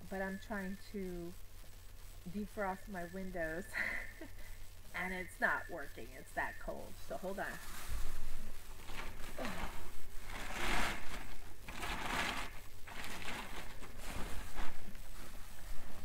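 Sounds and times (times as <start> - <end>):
foil sheeting crinkling: 7.4 - 16.0.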